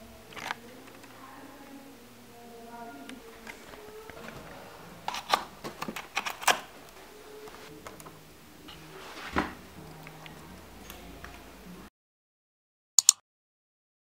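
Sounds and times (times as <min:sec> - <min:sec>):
cables and plugs clicking: 0:00.3 - 0:01.2, 0:03.1 - 0:08.2, 0:13.0 - 0:13.2.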